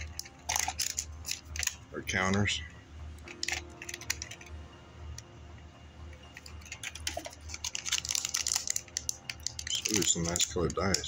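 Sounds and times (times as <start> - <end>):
plastic packaging crinkling: 0.0 - 1.8, 6.3 - 11.0.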